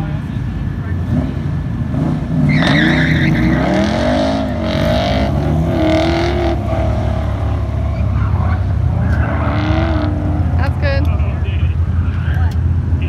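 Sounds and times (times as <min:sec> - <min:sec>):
car engine revving: 0:00.0 - 0:13.0
tires squealing: 0:01.0 - 0:13.0.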